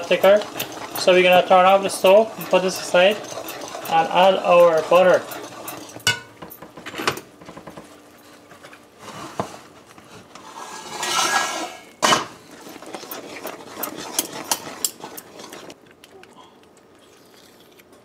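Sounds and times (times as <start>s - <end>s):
metal spoon scraping metal pot: 0.0s - 6.3s, 10.4s - 15.8s
pot clunk: 6.0s - 7.6s, 12.0s - 12.4s.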